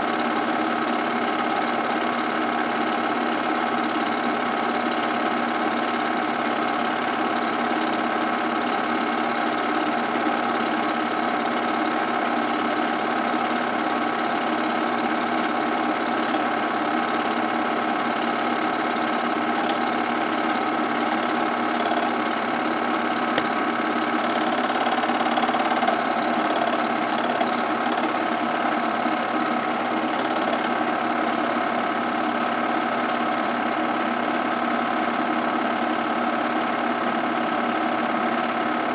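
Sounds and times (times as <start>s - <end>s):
movie projector whirring: 0.0s - 38.9s.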